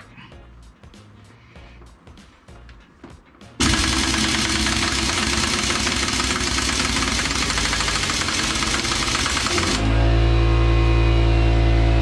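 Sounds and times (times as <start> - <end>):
impact wrench hammering: 3.6 - 9.9.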